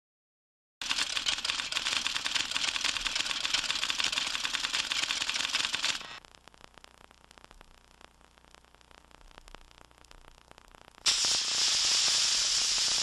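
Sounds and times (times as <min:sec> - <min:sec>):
typewriter keys clattering: 0:00.8 - 0:06.0.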